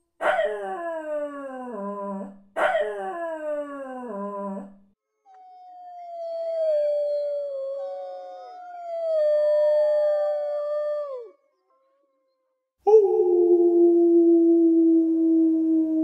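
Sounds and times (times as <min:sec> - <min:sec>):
dog howling: 0:05.6 - 0:11.4.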